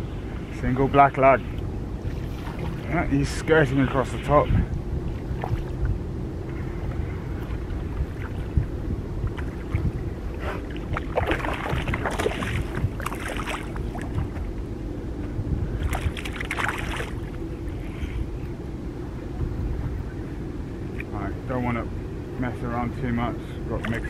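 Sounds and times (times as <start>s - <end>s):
water and wind around boat: 0.0s - 24.0s
rough water splashing: 1.4s - 14.6s, 15.7s - 18.0s.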